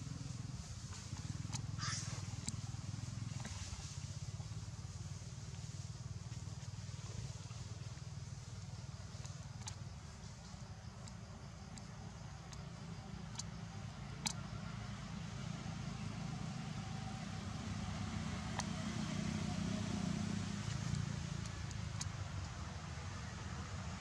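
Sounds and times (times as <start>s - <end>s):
distant engine rumble: 0.0s - 24.0s
faint sharp clicks: 0.9s - 2.7s, 8.5s - 14.7s, 17.3s - 23.4s.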